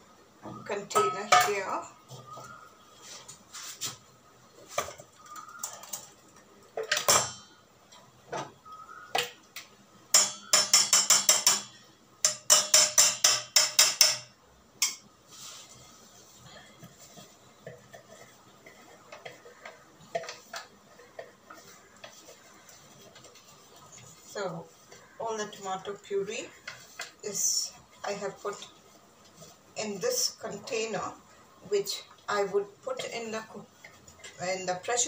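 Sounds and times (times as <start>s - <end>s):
metal strikes on steel pot: 10.1s - 15.0s.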